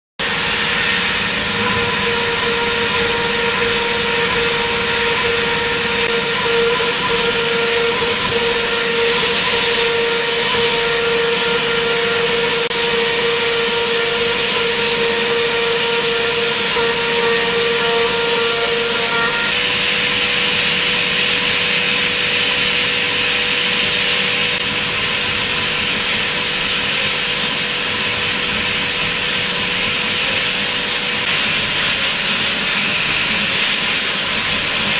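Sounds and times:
cutter hissing on metal: 0:00.2 - 0:20.8
machine spindle high whine: 0:00.2 - 0:34.9.

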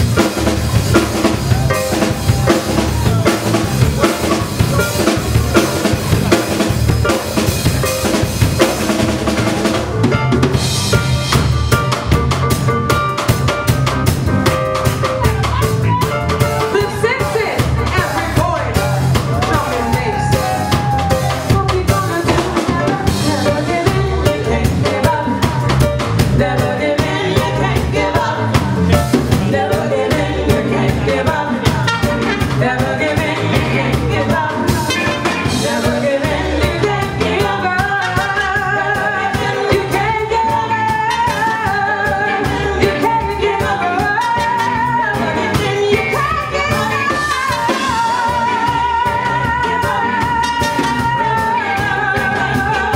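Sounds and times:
live reggae band playing: 0:00.0 - 0:52.9
person singing: 0:15.0 - 0:52.9.

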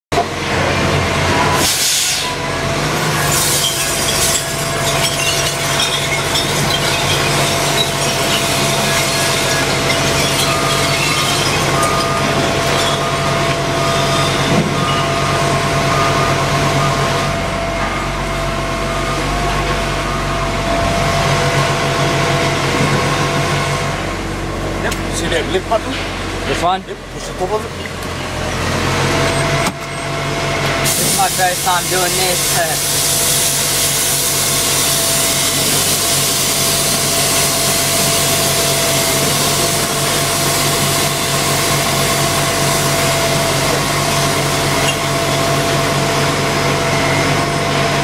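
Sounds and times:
truck engine running: 0:00.1 - 0:48.0
air hiss burst: 0:01.6 - 0:02.3.

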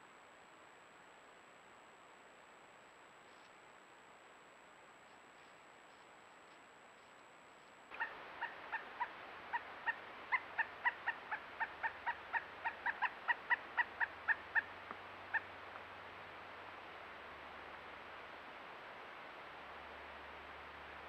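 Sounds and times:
woodpecker calling: 0:07.9 - 0:15.6.

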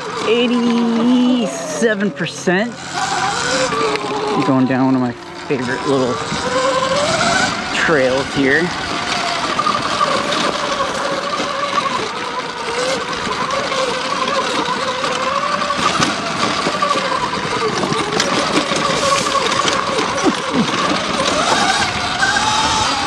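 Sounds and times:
electric motor whine: 0:00.0 - 0:23.0
knocks and rattles: 0:05.3 - 0:23.0.

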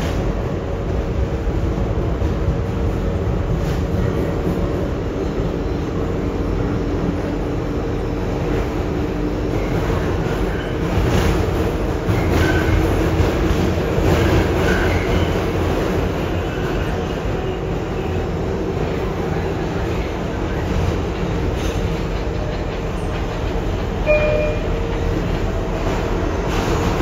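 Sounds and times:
subway wheels rumbling on rails: 0:00.0 - 0:27.0
wheels clacking over rail joints: 0:20.7 - 0:27.0.

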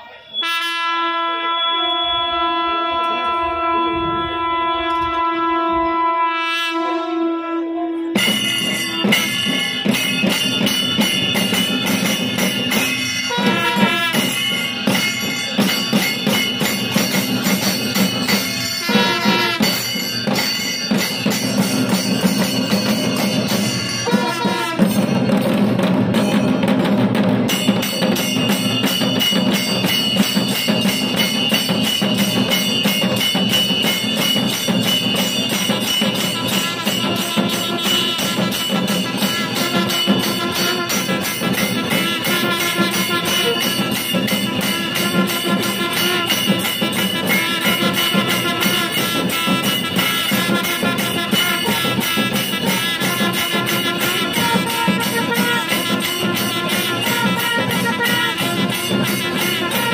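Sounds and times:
long brass horns calling: 0:00.3 - 0:09.3, 0:13.2 - 0:14.5, 0:18.6 - 0:20.0, 0:23.9 - 0:25.0, 0:35.9 - 0:59.9
clashing cymbals: 0:08.0 - 0:59.9
barrel drums beaten with sticks: 0:08.2 - 0:59.9.

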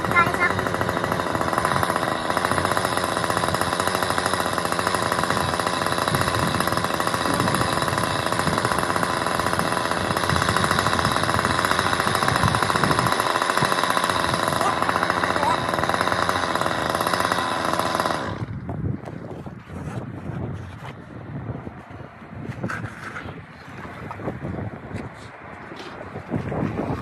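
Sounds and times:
road-works tool pounding: 0:00.0 - 0:20.2.

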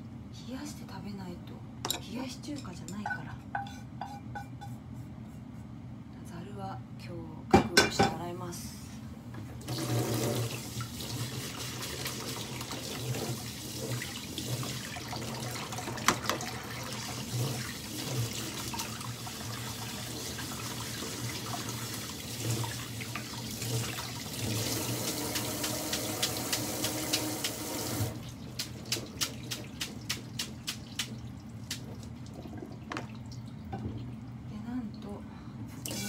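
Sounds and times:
water dripping: 0:24.9 - 0:34.4.

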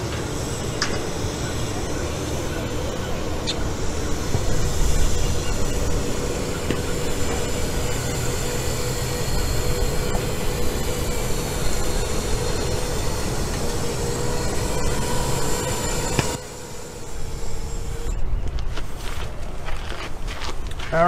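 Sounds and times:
drone propellers whining: 0:00.0 - 0:21.0.

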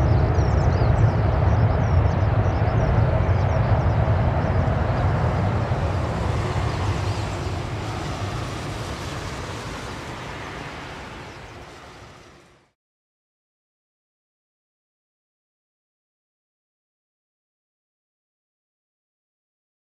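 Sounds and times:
deep jet engine rumble: 0:00.0 - 0:12.8.

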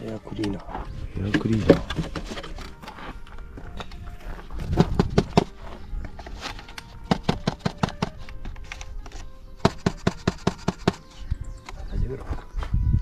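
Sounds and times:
plastic parts knocking and clicking: 0:01.3 - 0:02.8, 0:04.6 - 0:11.1.

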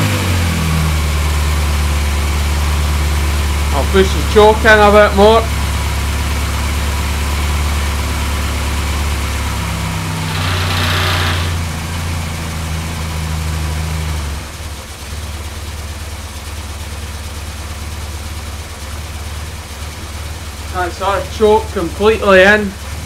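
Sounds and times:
car engine idling: 0:00.0 - 0:23.0.

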